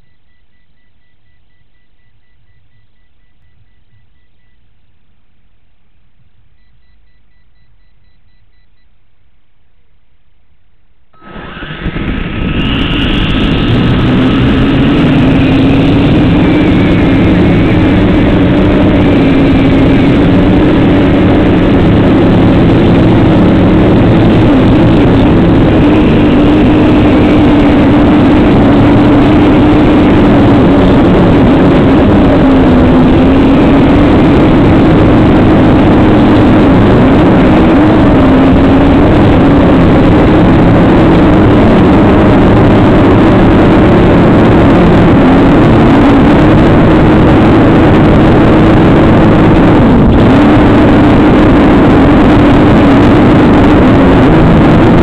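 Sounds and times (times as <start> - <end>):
faint rapid beeping: 0.0 - 4.9, 6.4 - 9.1.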